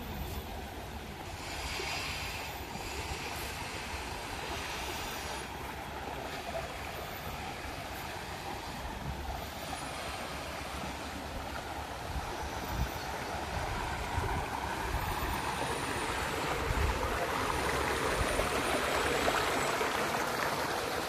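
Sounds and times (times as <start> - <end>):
rushing river water: 0.0 - 21.0.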